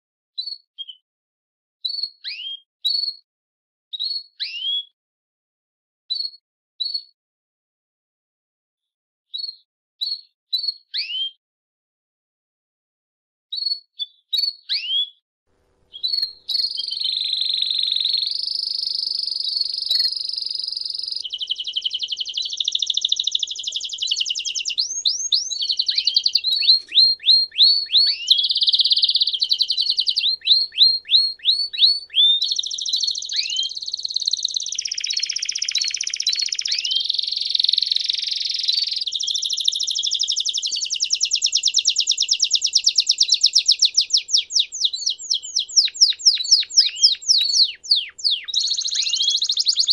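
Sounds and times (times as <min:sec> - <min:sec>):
canary singing trills: 0:15.9 - 0:49.9.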